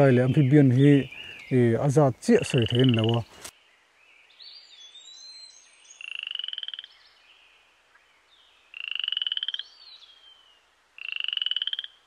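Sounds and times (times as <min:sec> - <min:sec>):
frog trilling call: 0:02.5 - 0:03.3, 0:05.9 - 0:07.0, 0:08.7 - 0:10.2, 0:11.0 - 0:12.0.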